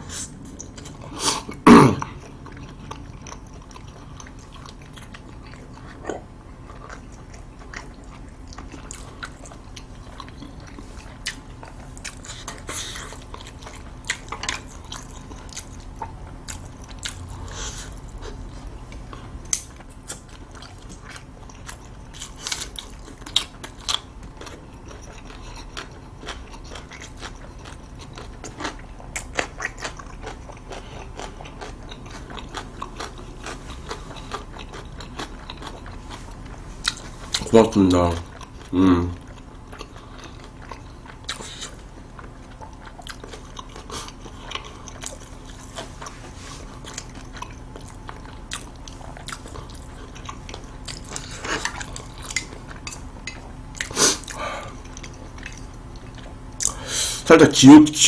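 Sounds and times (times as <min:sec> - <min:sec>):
chewing noodles: 0:00.4 - 0:56.8.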